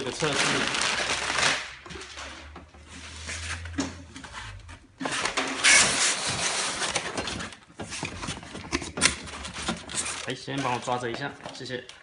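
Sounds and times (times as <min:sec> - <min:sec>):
plastic wrapping rustling: 0:00.0 - 0:12.0
cardboard scraping: 0:02.0 - 0:11.0.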